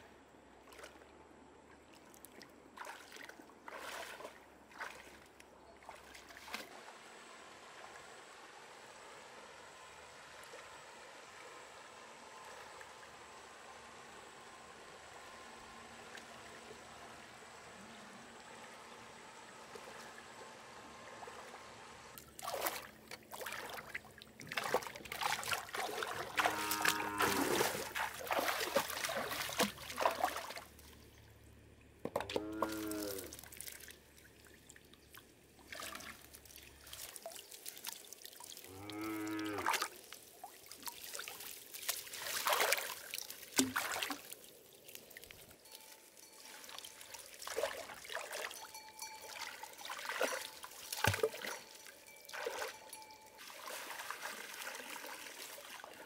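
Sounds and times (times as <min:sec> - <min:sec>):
water splashing and trickling: 0:00.5 - 0:14.9, 0:15.9 - 0:56.0
stream hiss: 0:06.5 - 0:31.1, 0:35.5 - 0:56.0.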